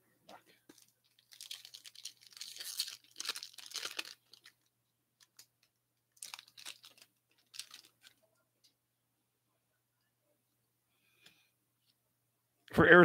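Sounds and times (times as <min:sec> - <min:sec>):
foil wrapper tearing and crinkling: 0:00.7 - 0:04.6, 0:06.2 - 0:08.1.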